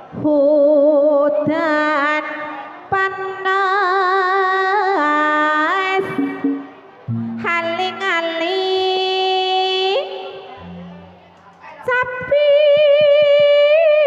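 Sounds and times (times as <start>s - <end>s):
woman singing with vibrato: 2.9s - 10.1s.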